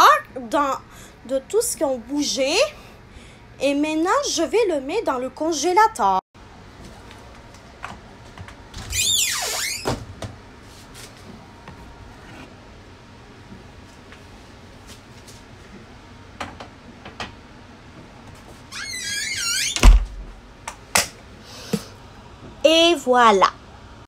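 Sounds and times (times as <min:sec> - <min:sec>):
freezer lid squeaking: 0:08.8 - 0:10.0, 0:18.7 - 0:19.9.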